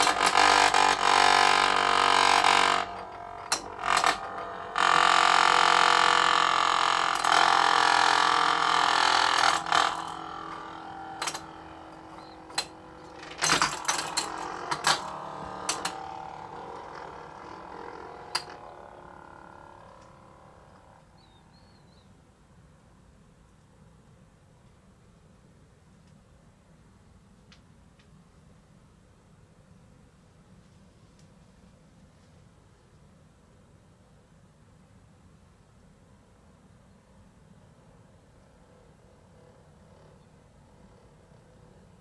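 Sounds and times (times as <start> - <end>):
sharp knocks: 0.0 - 21.0
spinning top whirring: 0.0 - 21.0.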